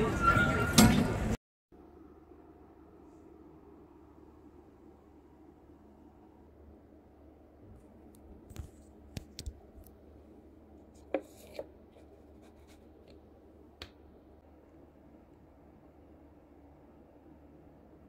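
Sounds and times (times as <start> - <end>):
paper cup taps and scrapes: 10.9 - 13.2.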